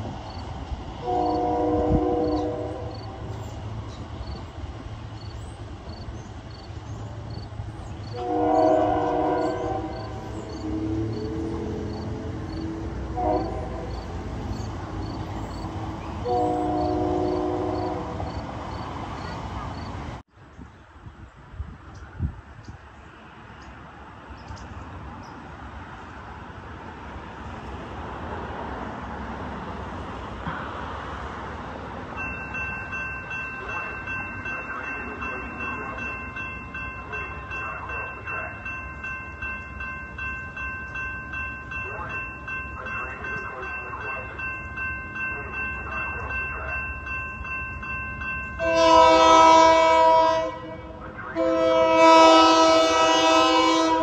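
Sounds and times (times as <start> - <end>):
train rumble: 0.0 - 54.0
train horn blasts: 1.0 - 3.4, 8.1 - 14.3, 16.1 - 18.4, 48.6 - 54.0.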